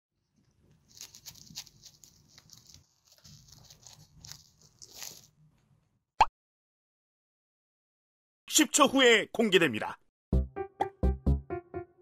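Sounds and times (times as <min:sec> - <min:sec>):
rabbit chewing hay: 0:00.2 - 0:05.3.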